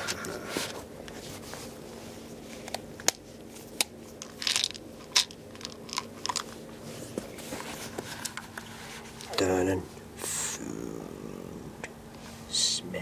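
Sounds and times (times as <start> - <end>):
crackling handling noise: 0.0 - 9.5.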